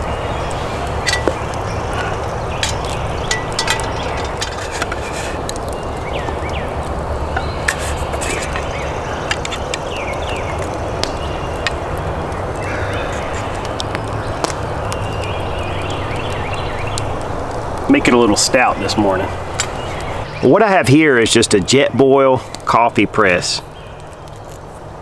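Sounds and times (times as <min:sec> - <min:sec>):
metal cup clinking: 0:02.6 - 0:05.1
metal tin being opened: 0:02.6 - 0:05.5.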